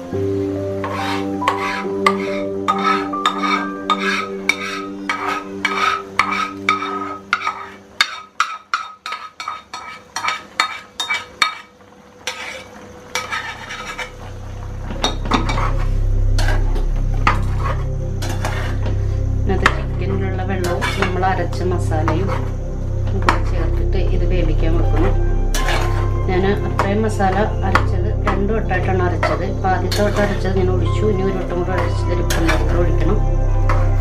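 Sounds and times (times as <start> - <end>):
spatula clinking and scraping metal: 0.8 - 14.3, 15.0 - 18.9, 20.6 - 21.2, 25.5 - 26.1, 29.1 - 30.6
stirring in a pan: 0.8 - 19.0, 25.5 - 26.1
low steady hum: 12.8 - 34.0.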